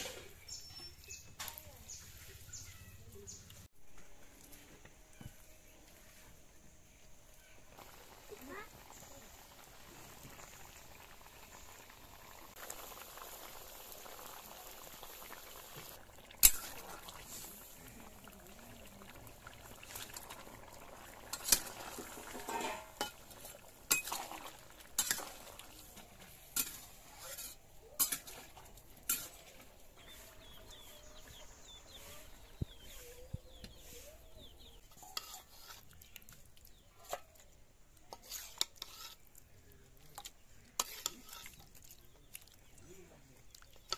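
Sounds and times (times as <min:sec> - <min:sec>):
curry bubbling: 0:07.7 - 0:43.9
ladle clinking steel bowl: 0:21.3 - 0:24.4
spatula scraping metal pan: 0:21.3 - 0:31.0, 0:34.8 - 0:35.9, 0:38.1 - 0:39.3, 0:40.8 - 0:41.6.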